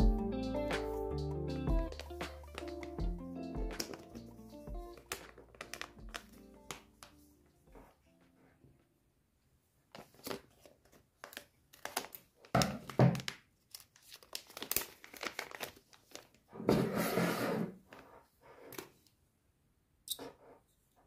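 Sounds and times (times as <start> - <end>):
plastic packaging crinkling: 1.9 - 3.0, 3.7 - 7.2, 9.9 - 16.5.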